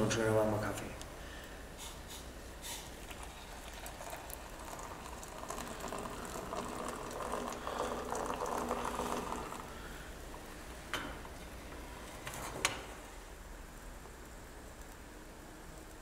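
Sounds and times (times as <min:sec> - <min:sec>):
coffee pouring into metal mug: 0:03.0 - 0:09.8.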